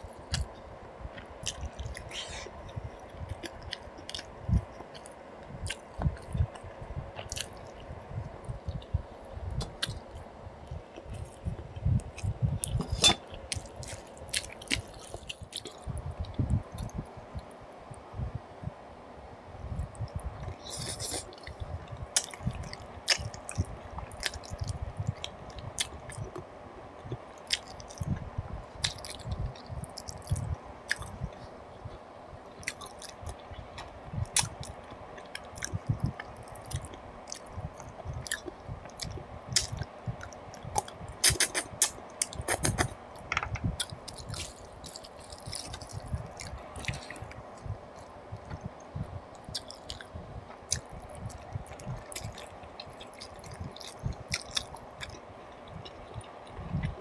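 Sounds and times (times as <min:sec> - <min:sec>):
wet chewing with clicks: 0:01.2 - 0:09.0, 0:20.0 - 0:26.4, 0:28.8 - 0:31.2, 0:32.6 - 0:57.0.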